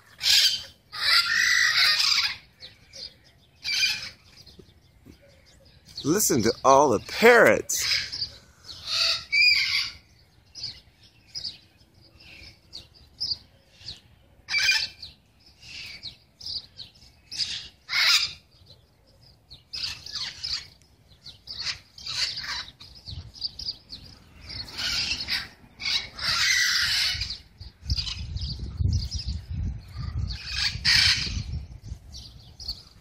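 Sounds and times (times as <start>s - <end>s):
parrots calling: 0.1s - 4.3s, 6.2s - 10.8s, 13.8s - 16.6s, 17.3s - 18.5s, 19.7s - 28.3s, 30.3s - 31.5s.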